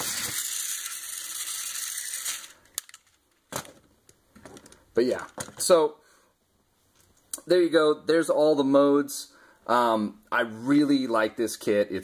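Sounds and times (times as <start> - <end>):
toy motor whirring: 0.0 - 3.0.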